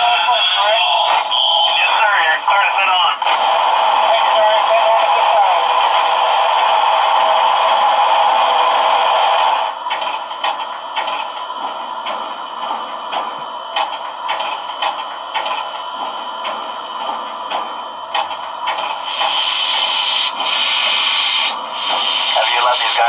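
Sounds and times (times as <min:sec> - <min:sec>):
steam hiss: 0:19.0 - 0:23.0.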